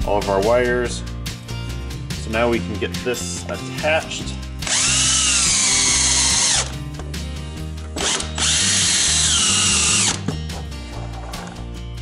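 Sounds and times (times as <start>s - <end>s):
background music: 0.0s - 12.0s
cordless drill motor whine: 4.6s - 6.7s, 8.0s - 10.2s.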